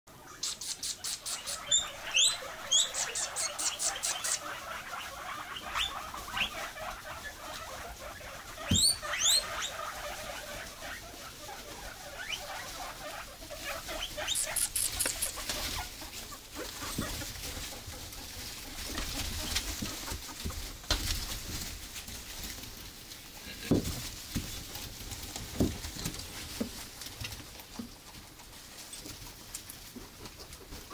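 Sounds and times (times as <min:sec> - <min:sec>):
guinea pigs wheeking: 0:00.1 - 0:30.9
quick high chirps: 0:00.3 - 0:04.4, 0:14.3 - 0:15.4.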